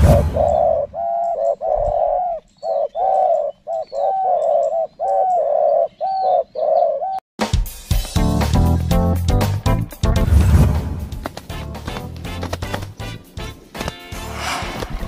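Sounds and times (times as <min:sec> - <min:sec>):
dove cooing: 0:00.0 - 0:07.2
music: 0:07.4 - 0:15.0.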